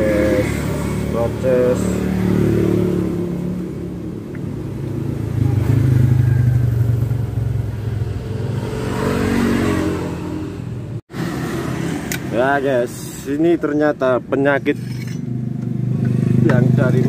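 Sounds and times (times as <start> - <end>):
vehicle engine humming: 0.0 - 17.0.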